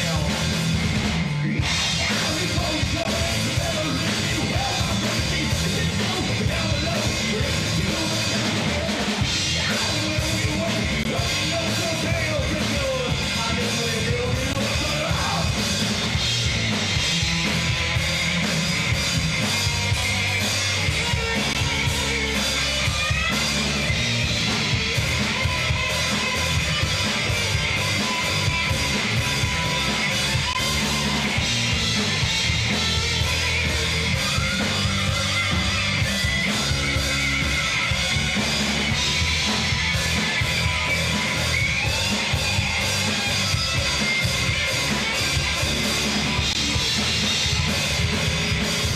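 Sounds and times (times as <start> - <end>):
distorted electric guitar: 0.0 - 48.9
heavy rock band playing: 0.0 - 48.9.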